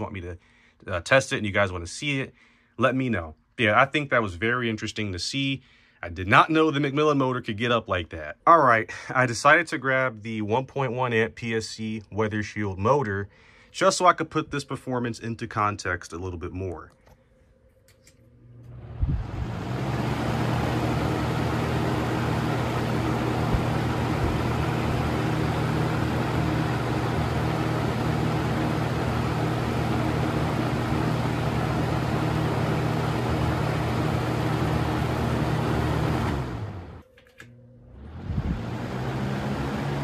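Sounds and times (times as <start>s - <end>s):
box fan running: 18.0s - 40.0s.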